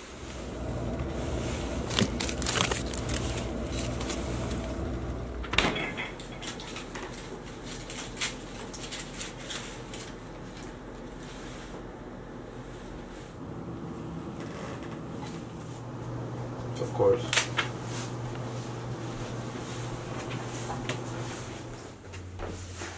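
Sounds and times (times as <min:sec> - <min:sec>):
items handled on fridge shelves: 0:00.0 - 0:13.4, 0:16.8 - 0:22.9
low fridge hum: 0:00.0 - 0:22.9
food wrapper crinkle: 0:01.8 - 0:04.3.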